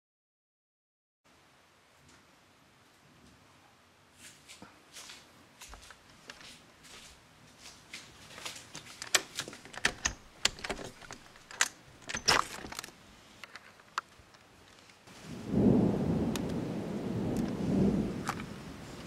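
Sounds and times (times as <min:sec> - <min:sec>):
window clicks and rattles: 0:08.6 - 0:14.1
window scrape: 0:08.7 - 0:12.8.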